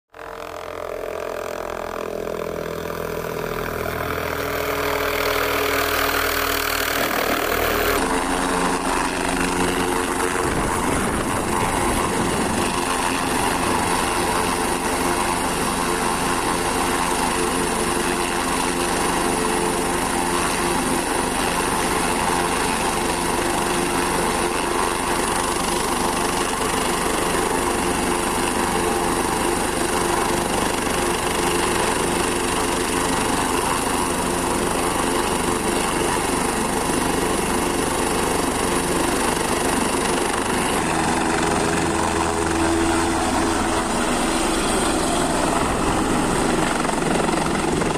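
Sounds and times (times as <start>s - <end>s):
helicopter engine and rotor: 0.2s - 47.9s.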